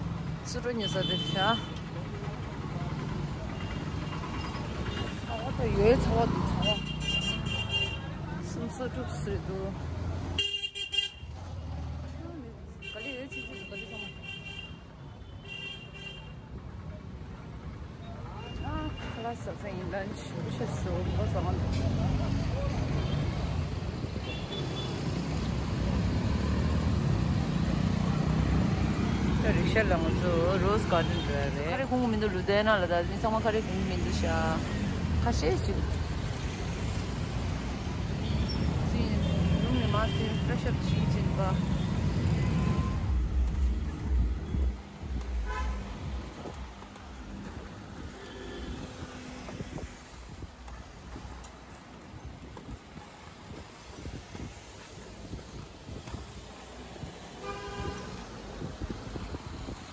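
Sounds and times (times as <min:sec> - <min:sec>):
vehicle engine rumble: 0:00.0 - 0:10.3, 0:18.9 - 0:59.9
motorcycle and scooter traffic hum: 0:00.0 - 0:59.9
street noise: 0:00.0 - 0:59.9
car horn toot: 0:45.4 - 0:45.8.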